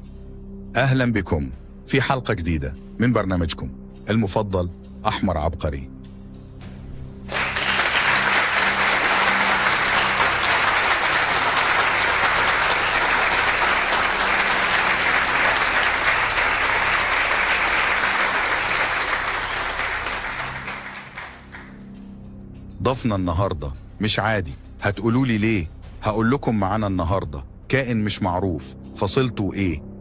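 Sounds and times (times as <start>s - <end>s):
audience applause: 7.3s - 21.7s.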